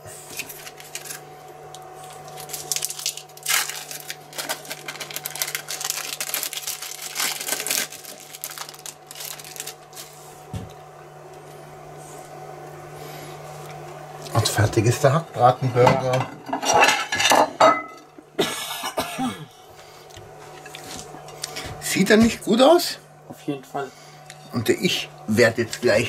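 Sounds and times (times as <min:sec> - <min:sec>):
steady low hum: 0:00.0 - 0:26.0
food handling rustles and taps: 0:08.1 - 0:11.5.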